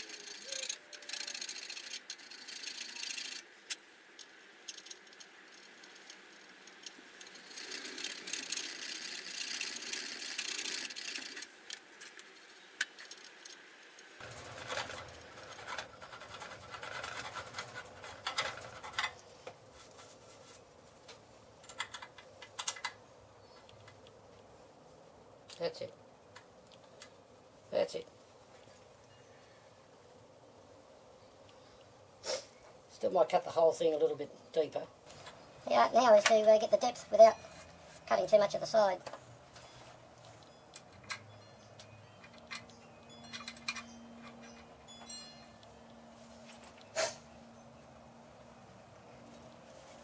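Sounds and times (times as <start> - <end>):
hand tool scraping metal: 14.2 - 19.2.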